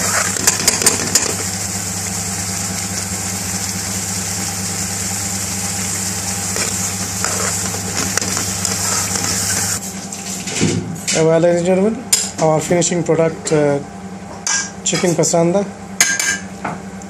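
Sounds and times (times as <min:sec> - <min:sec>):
gas burner hum and hiss: 0:00.0 - 0:17.0
sauce boiling pops: 0:00.3 - 0:04.6, 0:06.5 - 0:09.7.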